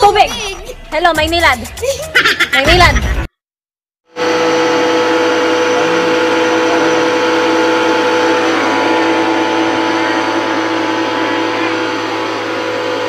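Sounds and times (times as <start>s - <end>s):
pressure washer running: 4.1s - 13.0s.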